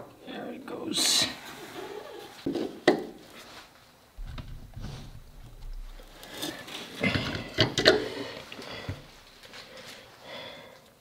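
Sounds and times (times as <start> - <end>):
low rubbing rumble: 4.2 - 6.8.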